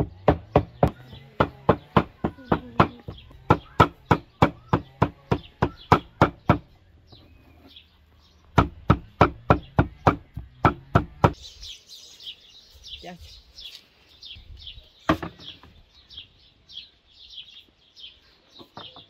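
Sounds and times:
cleaver chopping meat on wooden board: 0:00.0 - 0:06.7, 0:08.6 - 0:11.4
birds chirping: 0:00.0 - 0:19.0.

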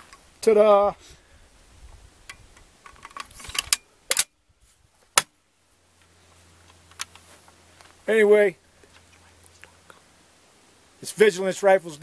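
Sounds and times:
rifle bolt metal clacking: 0:02.9 - 0:04.3.

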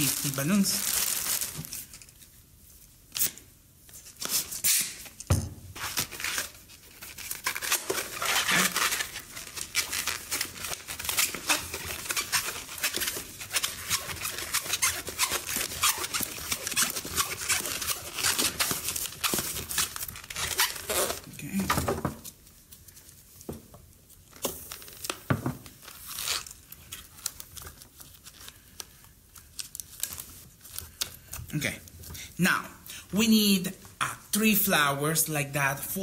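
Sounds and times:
plastic bag crinkling: 0:00.0 - 0:02.4, 0:05.8 - 0:21.4
balloons crackling and rubbing: 0:00.0 - 0:02.8, 0:05.8 - 0:21.6, 0:24.0 - 0:32.0.

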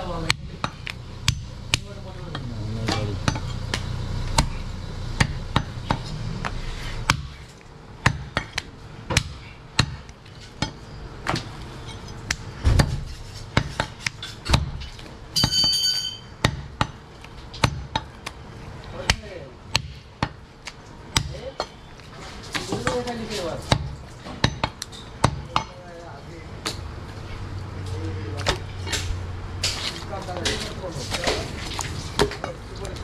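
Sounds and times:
cleaver chopping meat on wood: 0:05.2 - 0:07.4, 0:08.0 - 0:11.5, 0:12.3 - 0:14.9, 0:16.4 - 0:18.4, 0:19.0 - 0:21.8, 0:22.5 - 0:25.8.

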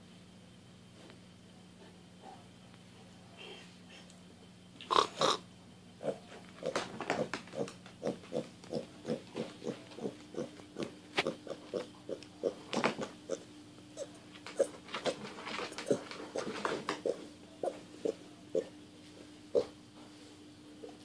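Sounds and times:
pig calls: 0:04.8 - 0:05.4, 0:06.0 - 0:15.2, 0:19.5 - 0:19.8
pig grunting: 0:04.9 - 0:05.4, 0:06.0 - 0:13.4, 0:15.8 - 0:18.7, 0:19.5 - 0:19.8.

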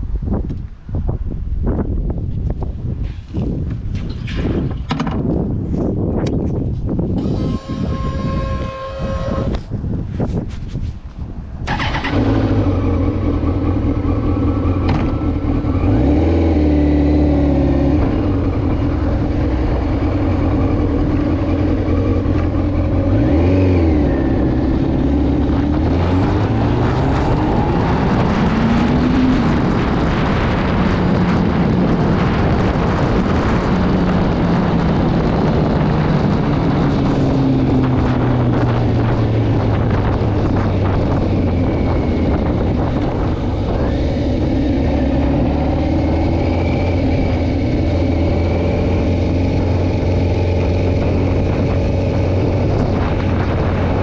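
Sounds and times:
wind rushing: 0:00.0 - 0:54.0
motorcycle engine accelerating: 0:11.6 - 0:54.0.

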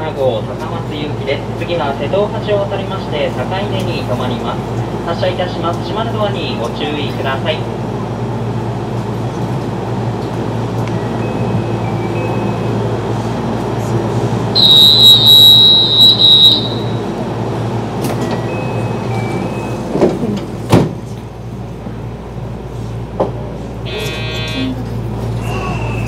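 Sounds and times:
train equipment humming: 0:07.8 - 0:26.0
shrill departure signal: 0:14.6 - 0:17.3, 0:23.9 - 0:24.8.

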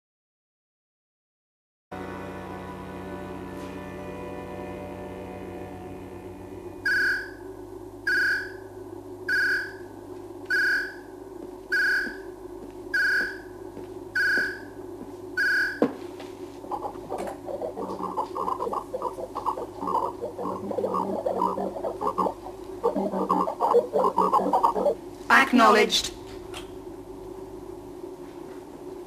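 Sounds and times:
steady low hum: 0:01.9 - 0:29.0
bubbling electronic chatter: 0:16.7 - 0:25.0.

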